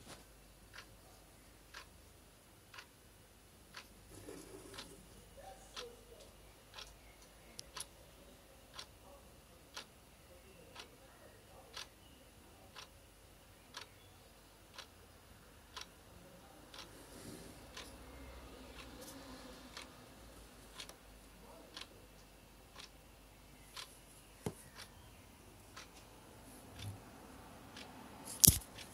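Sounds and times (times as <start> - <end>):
clock ticking: 0.7 - 0.9, 1.7 - 1.9, 2.7 - 3.0, 3.7 - 8.0, 8.7 - 10.0, 10.8 - 11.9, 12.7 - 13.0, 13.7 - 13.9, 14.7 - 15.0, 15.7 - 16.0, 16.7 - 16.9, 17.7 - 19.0, 19.7 - 20.0, 20.7 - 23.9, 24.5 - 24.9, 25.7 - 26.0, 27.7 - 28.9.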